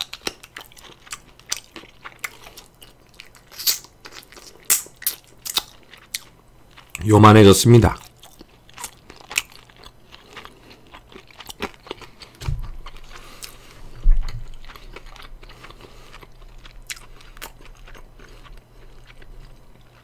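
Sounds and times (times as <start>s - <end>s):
crunching and chewing fried chicken: 0.0s - 20.0s
dull thumps: 12.4s - 12.8s.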